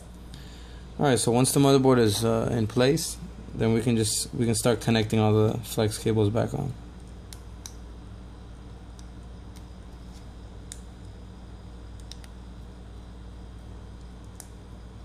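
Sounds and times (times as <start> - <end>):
steady low hum: 0.0 - 15.0
small connector clicks: 12.0 - 12.4.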